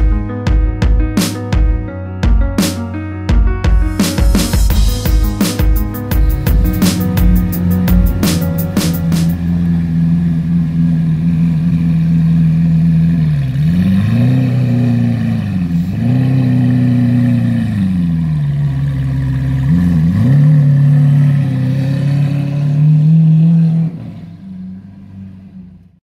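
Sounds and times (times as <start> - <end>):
car engine idling: 6.0 - 23.6.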